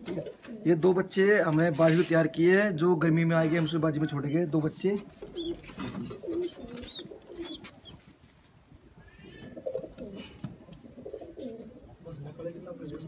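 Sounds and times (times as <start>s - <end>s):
pigeons cooing: 0.0s - 0.8s, 5.1s - 8.1s, 8.8s - 12.3s.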